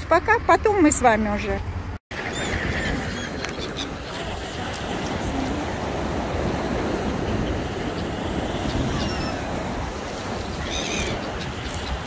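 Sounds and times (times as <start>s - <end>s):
wind buffeting microphone: 2.1s - 12.0s
surf on pebble beach: 2.2s - 12.0s
gull call: 8.6s - 9.6s, 10.5s - 11.7s.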